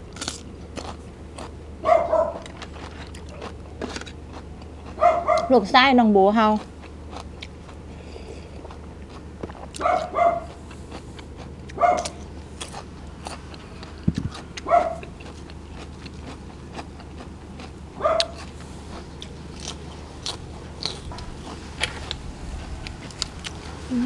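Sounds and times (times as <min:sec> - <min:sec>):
crisp chewing clicks: 0:08.6 - 0:23.6.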